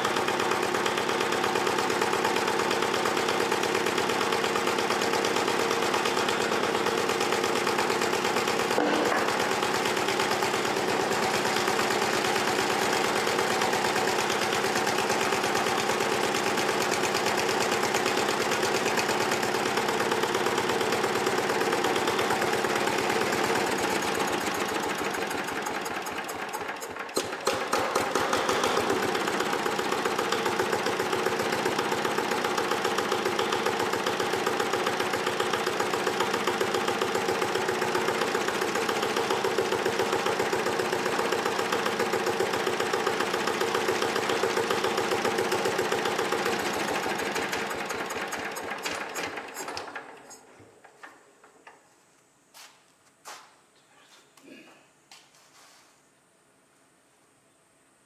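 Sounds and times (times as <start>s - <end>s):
small diesel engine running: 0.0s - 50.5s.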